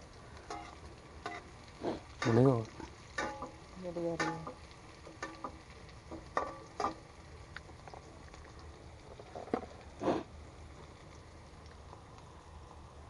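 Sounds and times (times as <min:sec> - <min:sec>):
utensils knocking on wok: 0:02.2 - 0:07.0.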